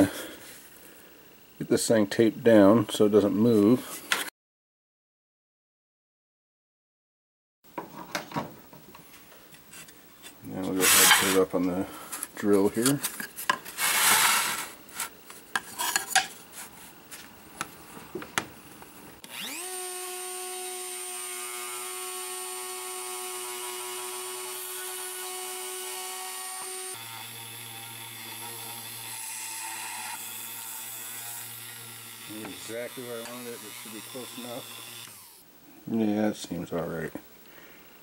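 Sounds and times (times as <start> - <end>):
drill press motor whining: 19.2 - 25.1, 31.8 - 35.4.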